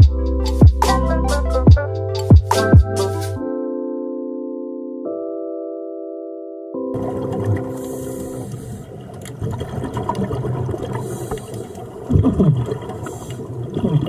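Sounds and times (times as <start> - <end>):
gurgling bubbles: 7.0 - 14.0
divers breathing through regulators: 7.6 - 9.0, 10.9 - 12.0, 12.9 - 13.6.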